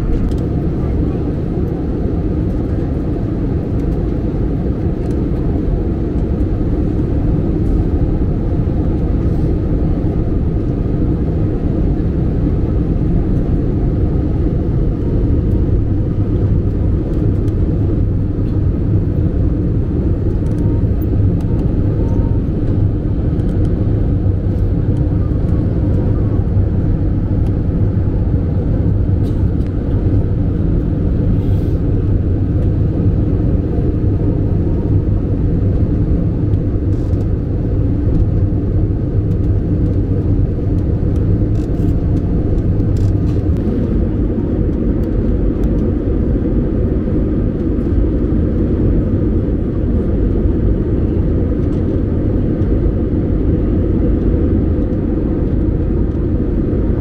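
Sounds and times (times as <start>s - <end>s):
jet engines rumbling in cabin: 0.0s - 57.0s
rushing airflow: 14.1s - 36.5s.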